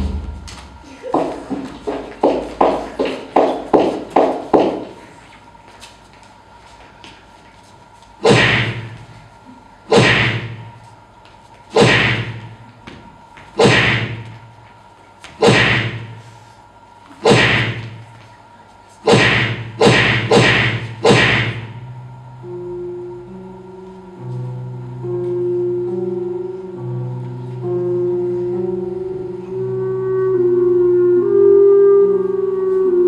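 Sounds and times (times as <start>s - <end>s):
heavy echoing thuds: 0.0s - 0.9s, 8.2s - 9.1s, 9.9s - 10.8s, 11.7s - 14.5s, 15.4s - 16.3s, 17.2s - 18.1s, 19.1s - 21.9s
low sustained musical notes: 21.6s - 33.0s.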